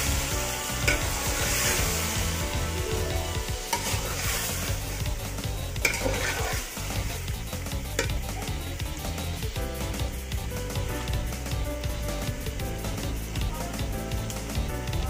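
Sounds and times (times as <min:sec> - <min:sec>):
curry sizzling in a pot: 0:00.0 - 0:15.0
ladle stirring: 0:00.8 - 0:05.0, 0:05.8 - 0:06.8.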